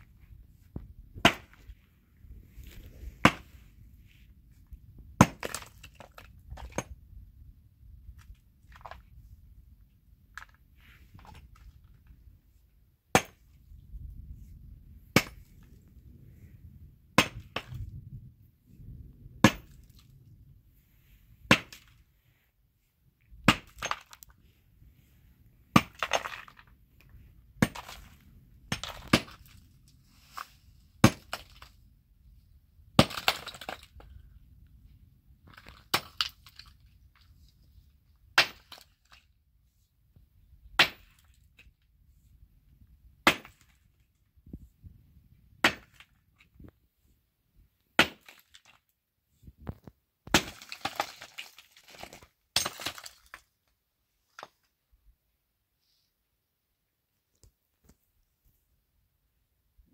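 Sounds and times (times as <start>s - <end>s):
pickaxe striking rock: 1.2s - 1.7s, 3.2s - 3.5s, 5.2s - 6.9s, 13.1s - 13.4s, 15.1s - 15.5s, 17.2s - 17.8s, 19.4s - 20.0s, 21.5s - 22.0s, 23.4s - 24.2s, 25.7s - 26.6s, 27.6s - 28.1s, 28.7s - 29.6s, 31.0s - 31.7s, 33.0s - 34.0s, 35.5s - 36.6s, 38.4s - 39.0s, 40.8s - 41.3s, 43.2s - 43.8s, 45.6s - 46.1s, 48.0s - 48.6s, 49.8s - 53.4s
broken stone rattling: 50.3s - 53.5s.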